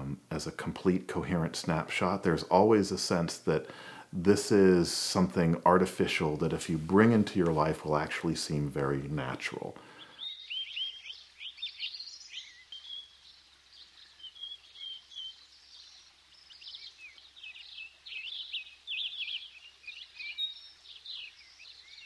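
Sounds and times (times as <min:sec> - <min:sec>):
small birds chirping and twittering: 0:05.0 - 0:22.0.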